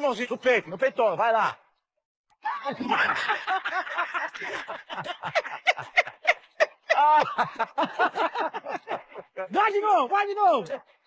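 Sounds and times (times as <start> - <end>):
men laughing hard: 2.4 - 9.5.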